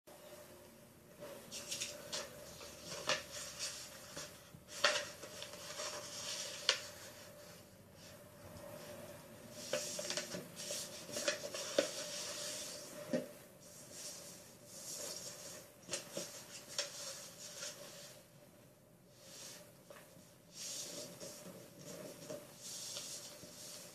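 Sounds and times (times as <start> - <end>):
paper rustling and sliding: 1.2 - 18.3, 19.1 - 23.9
paper crinkles and taps: 1.5 - 6.9, 15.8 - 17.8.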